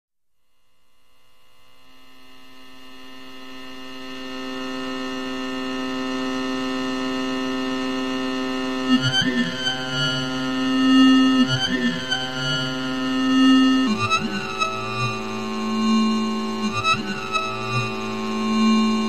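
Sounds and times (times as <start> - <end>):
synthesizer drone note: 8.7 - 19.0.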